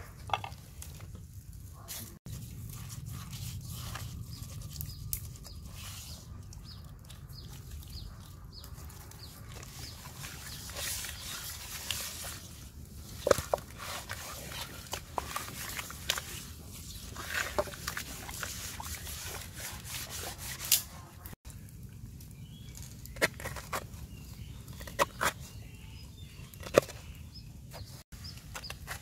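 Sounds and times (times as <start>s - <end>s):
hands squishing wet marinade: 1.7s - 21.3s.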